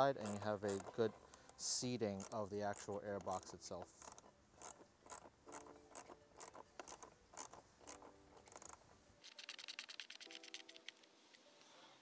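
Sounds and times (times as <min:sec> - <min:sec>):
ratchet wrench clicking: 0:00.2 - 0:01.6, 0:04.0 - 0:10.8.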